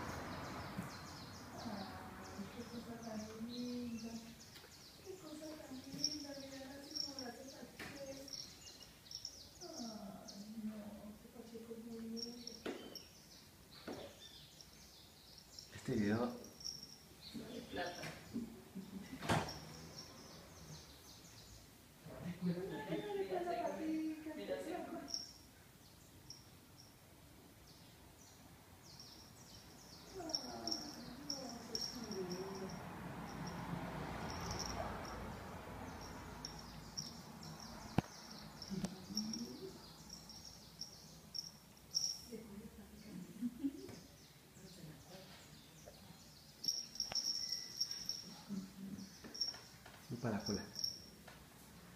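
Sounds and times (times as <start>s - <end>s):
dogs whining and grumbling: 30.1s - 35.3s
faint bird chirps: 43.6s - 51.0s.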